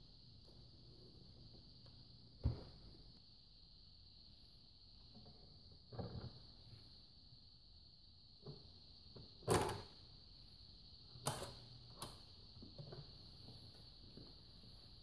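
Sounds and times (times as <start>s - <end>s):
faint high hiss: 0.0s - 15.0s.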